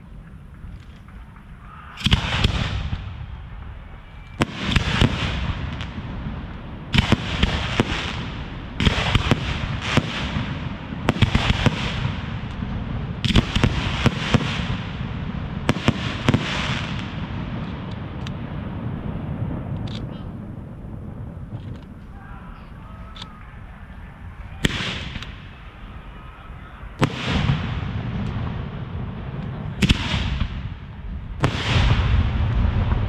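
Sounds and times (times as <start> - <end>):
firework crackling: 0.0 - 33.0
firework shells bursting: 24.6 - 25.9.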